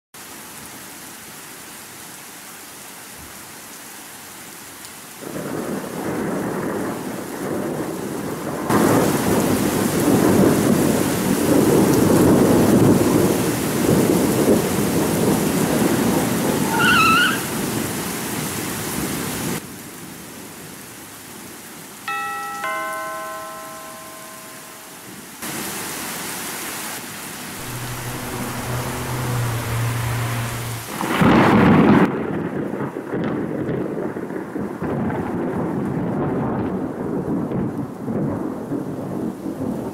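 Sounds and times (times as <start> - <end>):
steady rain: 0.2 - 39.9
thunder rumble: 5.2 - 19.6, 27.4 - 39.9
doorbell two-note chime: 22.1 - 25.2, 27.6 - 30.8.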